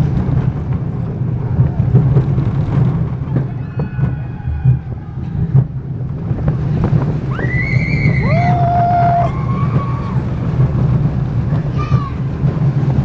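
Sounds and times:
roller coaster rumbling on track: 0:00.0 - 0:13.0
wind on microphone: 0:00.0 - 0:13.0
riders screaming: 0:03.4 - 0:05.2, 0:07.2 - 0:10.4.

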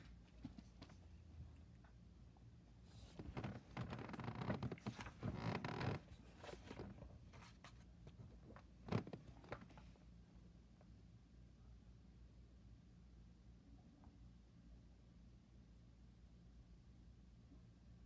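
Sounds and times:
papers rustling and scraping: 0:03.0 - 0:09.8.

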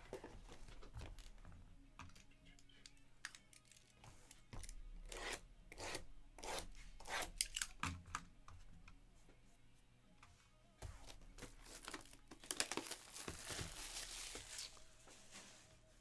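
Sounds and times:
blade slicing plastic wrap: 0:11.6 - 0:14.8.

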